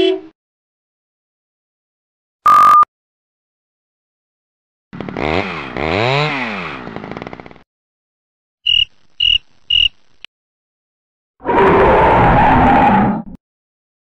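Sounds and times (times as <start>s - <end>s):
censor beep: 2.5s - 2.9s
chainsaw revving: 5.0s - 7.6s
cricket chirps: 8.7s - 10.3s.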